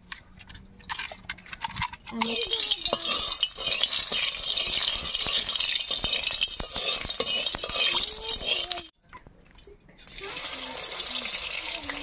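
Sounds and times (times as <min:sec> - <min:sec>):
metal spatula scraping pan: 0:01.6 - 0:08.9
hot oil sizzling: 0:02.2 - 0:08.9, 0:10.0 - 0:12.0.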